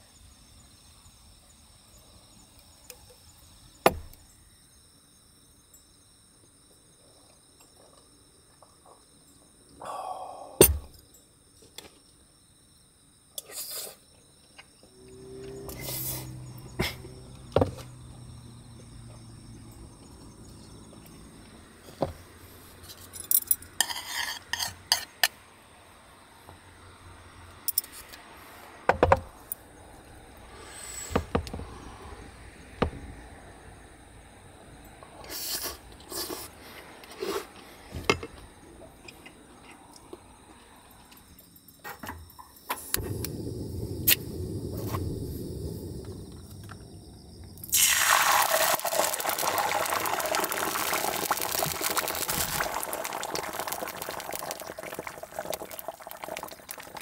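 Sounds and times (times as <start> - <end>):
metal spoon scraping wooden bowl: 23.8 - 25.2.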